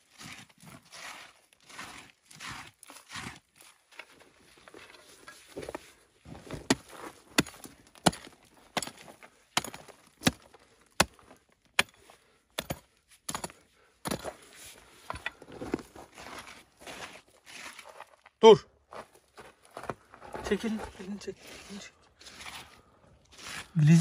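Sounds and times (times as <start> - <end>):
pickaxe striking stony soil: 0.2 - 3.5, 6.3 - 14.5
gravel scraping and rattling: 13.5 - 18.4, 19.0 - 24.0.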